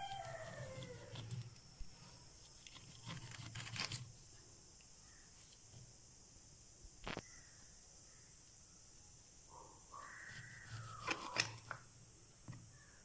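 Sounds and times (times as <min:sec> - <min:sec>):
faint high hiss: 0:04.0 - 0:13.0
knife snapping cauliflower stalks: 0:10.8 - 0:11.7.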